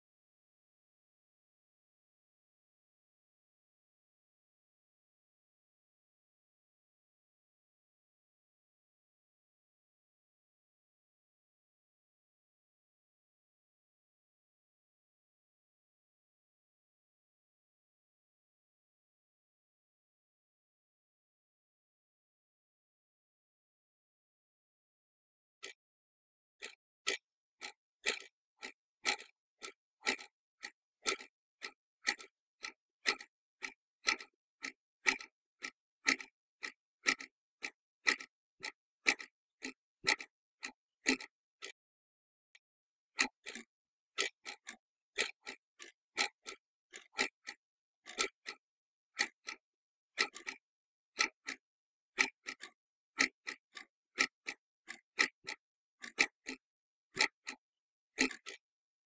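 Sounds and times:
clock ticking: 26.6s - 41.8s, 43.2s - 45.6s.

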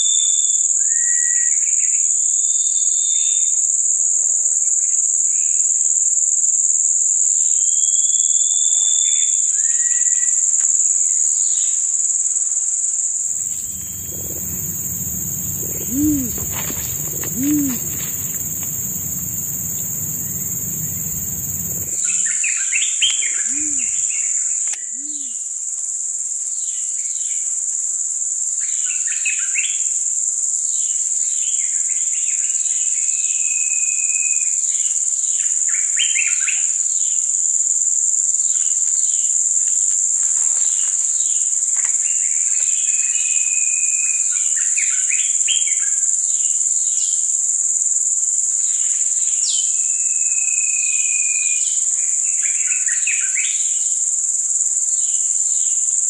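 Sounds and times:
small birds chirping: 13.3s - 22.0s
insects droning: 13.3s - 22.1s.

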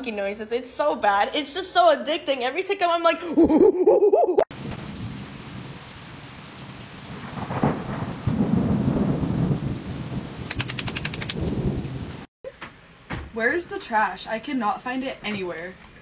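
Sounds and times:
steady rain: 4.5s - 12.3s
rolling thunder: 4.8s - 12.3s.

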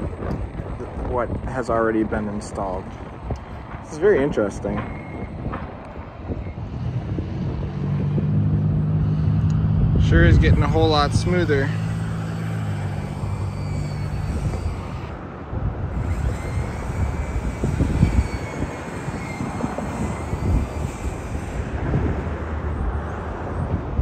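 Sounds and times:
uneven low engine rumble: 0.0s - 24.0s
diesel engine hum: 2.3s - 24.0s.

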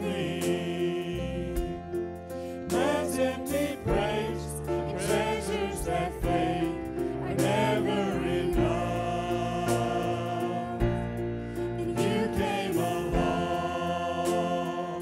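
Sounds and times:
group singing in harmony: 0.0s - 15.0s
instrumental backing: 0.0s - 15.0s.

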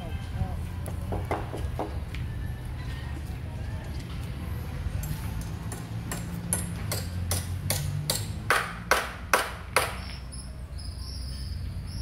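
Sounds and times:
hammer striking wood: 1.1s - 2.0s, 5.7s - 10.0s.

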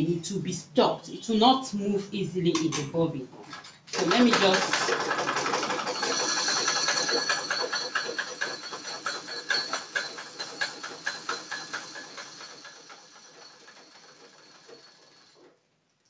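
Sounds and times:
sewing machine clicking: 3.4s - 15.6s.

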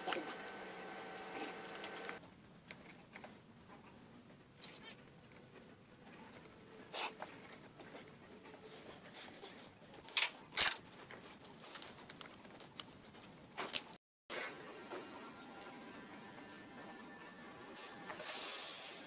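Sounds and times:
wire clicks and rustles: 0.0s - 3.3s, 9.9s - 14.0s.

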